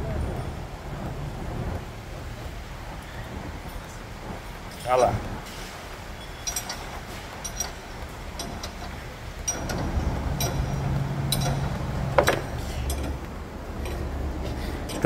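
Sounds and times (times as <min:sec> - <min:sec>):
low steady machine hum: 0:08.4 - 0:15.0.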